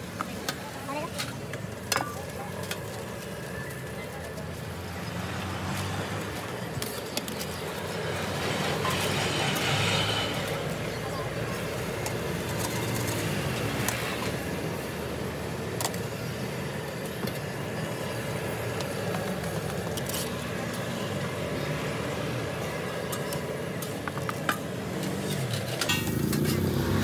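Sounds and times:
street traffic rumble: 0:00.0 - 0:27.0
utensils clinking: 0:23.1 - 0:26.8.

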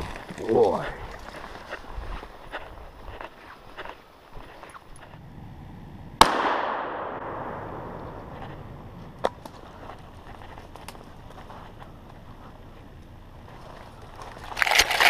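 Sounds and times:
shotgun shot with echo: 0:06.2 - 0:08.0.

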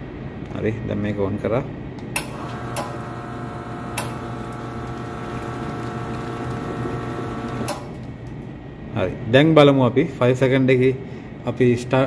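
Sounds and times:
espresso machine pump humming: 0:02.3 - 0:08.1
machine clicks: 0:07.4 - 0:08.0.

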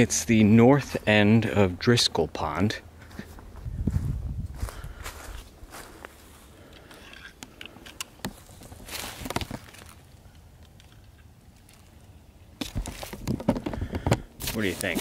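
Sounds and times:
footsteps in dry leaves: 0:03.2 - 0:06.5, 0:08.4 - 0:10.2.

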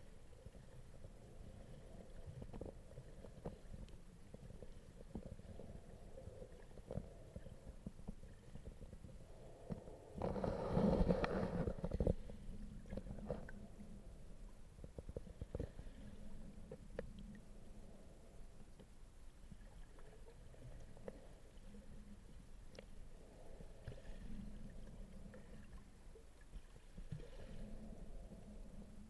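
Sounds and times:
underwater rumble of water: 0:00.0 - 0:29.0
faint clicks: 0:06.4 - 0:14.0, 0:14.8 - 0:17.5, 0:18.6 - 0:21.7, 0:22.3 - 0:23.0
underwater rushing noise: 0:09.3 - 0:14.3.

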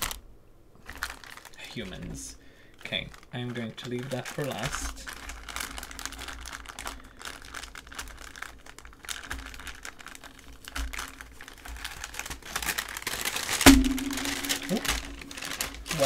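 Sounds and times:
tissue paper crinkling: 0:00.8 - 0:16.0
sharp knock: 0:13.7 - 0:15.2.

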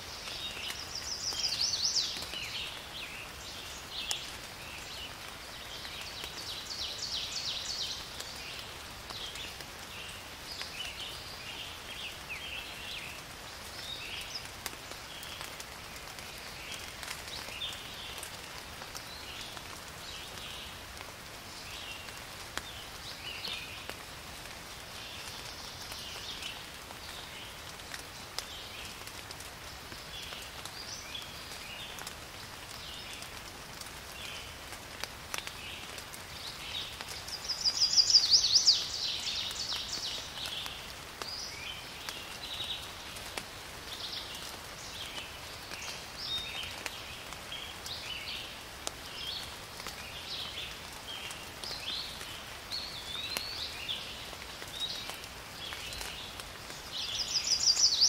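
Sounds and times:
faint rain patter: 0:00.0 - 0:58.0
songbirds chirping and singing: 0:00.2 - 0:14.6, 0:35.4 - 0:43.0, 0:43.6 - 0:58.0.

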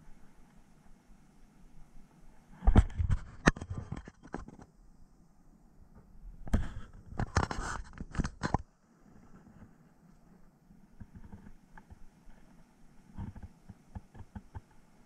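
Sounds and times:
handling noise on microphone: 0:02.5 - 0:04.8, 0:05.9 - 0:14.9.

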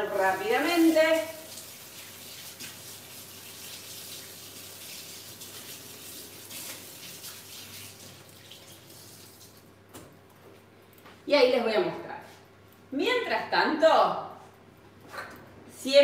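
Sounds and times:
tap water running: 0:00.0 - 0:10.2.

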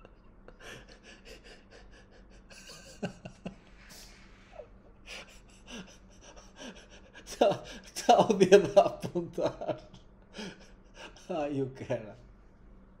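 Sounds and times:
man's stifled laughter: 0:00.0 - 0:03.6.

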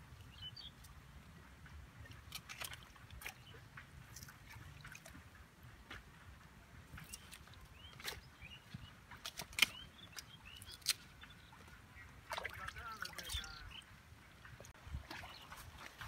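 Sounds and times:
water splashing and dripping: 0:00.0 - 0:16.0.

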